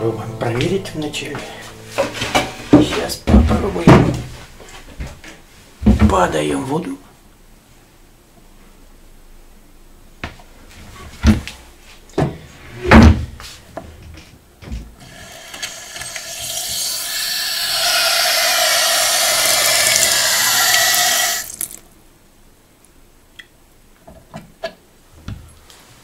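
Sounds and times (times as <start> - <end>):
water running into steel sink: 15.0 - 21.8.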